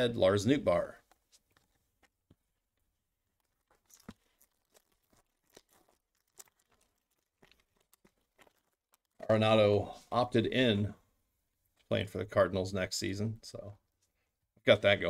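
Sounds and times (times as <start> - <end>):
foil pack crinkling and tearing: 3.3 - 9.2.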